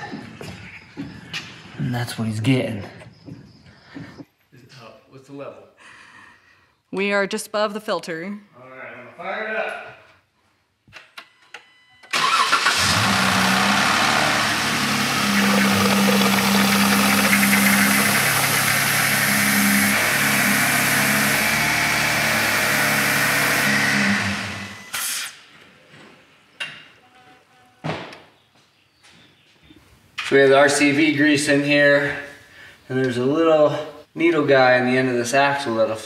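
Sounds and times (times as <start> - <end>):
car engine running: 12.8 - 24.8.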